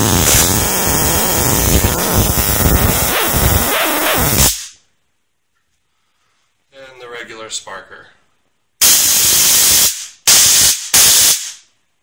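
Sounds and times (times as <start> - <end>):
stun gun electric crackle: 0.0 - 4.8.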